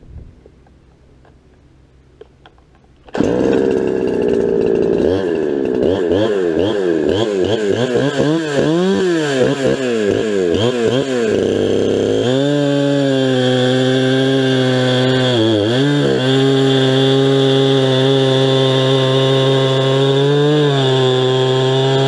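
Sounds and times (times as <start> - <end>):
chainsaw engine revving: 3.0 - 22.0.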